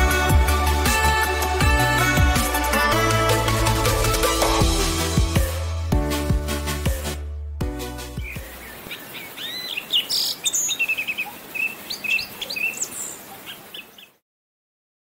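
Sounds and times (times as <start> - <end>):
electronic music: 0.0 - 8.4
songbirds chirping: 8.1 - 14.2.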